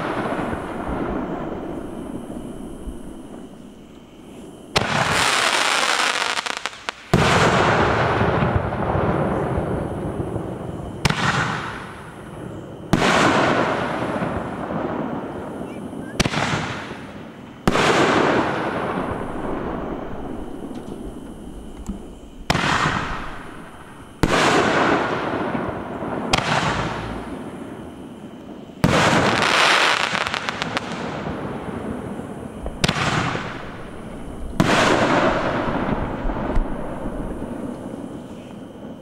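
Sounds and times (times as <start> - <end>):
fireworks crackling: 0.0 - 27.8, 28.4 - 39.0
fireworks booming with rolling echo: 0.0 - 39.0.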